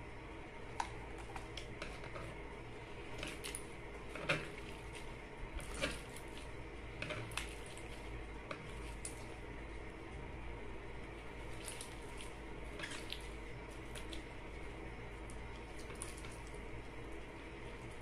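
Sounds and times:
steady low hum: 0:00.0 - 0:18.0
slime squelching: 0:02.9 - 0:09.4, 0:11.1 - 0:14.7, 0:15.3 - 0:16.6.

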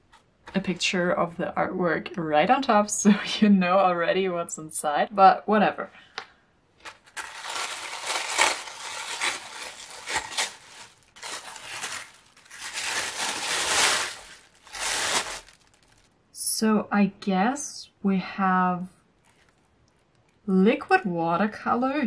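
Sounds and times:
tissue paper rustling: 0:06.8 - 0:16.1.

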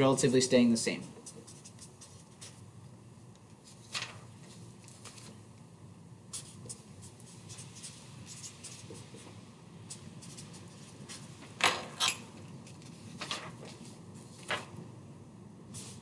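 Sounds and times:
pen scratching on paper: 0:01.1 - 0:02.6, 0:06.3 - 0:11.3
paper handling: 0:03.6 - 0:05.4, 0:06.3 - 0:14.8.

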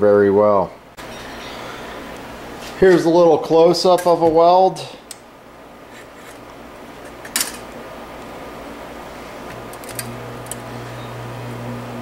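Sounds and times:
transformer humming: 0:09.6 - 0:12.0.

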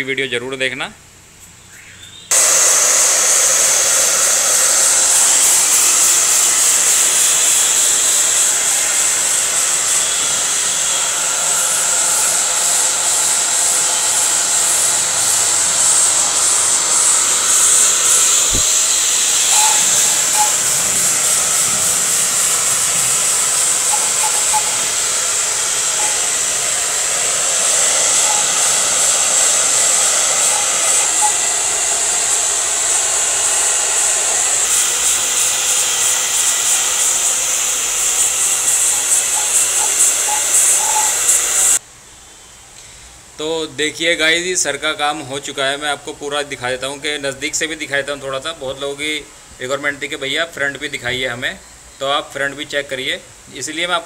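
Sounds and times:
hair dryer blowing: 0:02.3 - 0:41.8.

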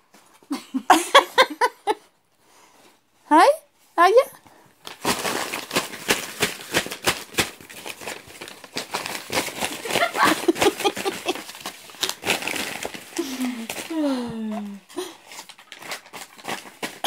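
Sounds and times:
paper pages crinkling and rustling: 0:04.8 - 0:14.1, 0:15.0 - 0:17.0.

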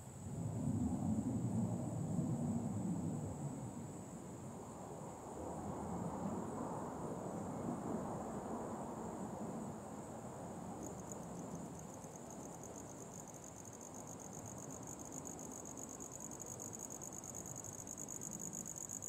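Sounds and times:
insect trilling: 0:10.8 - 0:19.0.

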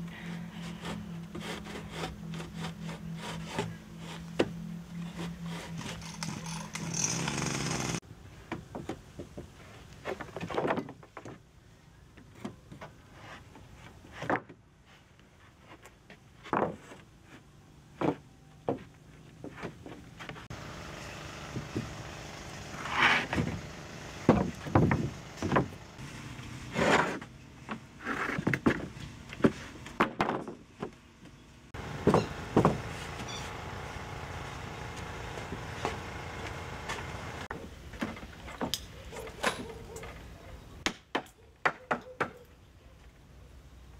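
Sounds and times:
wooden boards rubbing and clattering: 0:22.7 - 0:25.8.

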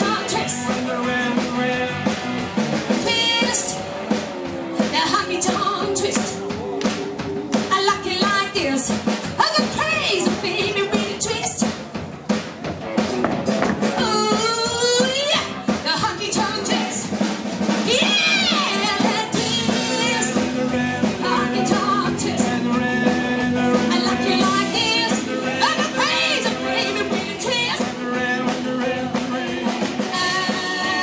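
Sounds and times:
woman singing into a microphone: 0:00.0 - 0:01.0, 0:03.0 - 0:03.8, 0:04.8 - 0:06.7, 0:17.9 - 0:22.7, 0:23.8 - 0:28.0, 0:30.0 - 0:31.0
drum-led live music: 0:00.0 - 0:31.0.

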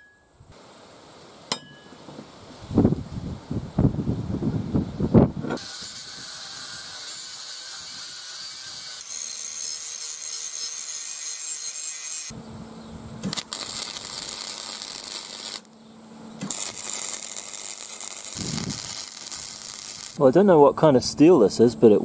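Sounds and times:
welder arcing: 0:05.5 - 0:12.4, 0:13.2 - 0:15.8, 0:16.4 - 0:20.3
angle grinder cutting steel: 0:05.6 - 0:12.3, 0:13.2 - 0:15.8, 0:16.4 - 0:20.2.

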